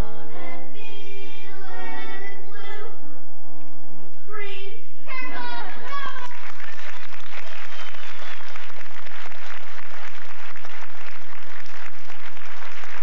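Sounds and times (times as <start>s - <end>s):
children's song: 0.0s - 3.0s, 4.3s - 6.4s
audience applauding: 5.9s - 13.0s.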